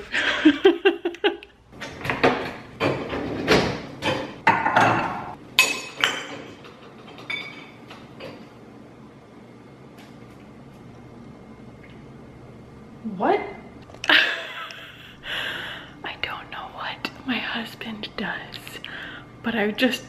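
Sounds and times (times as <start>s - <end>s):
dishes and glasses clinking: 2.1s - 8.5s.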